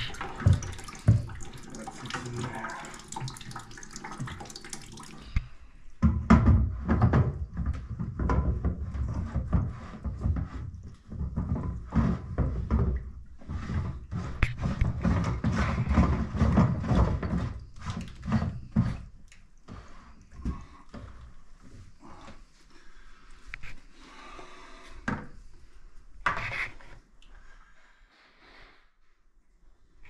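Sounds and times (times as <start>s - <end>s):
plastic rubbing creaking and knocking: 0.0s - 2.6s, 6.0s - 21.8s
water trickling and splashing: 0.0s - 6.0s, 8.7s - 21.8s.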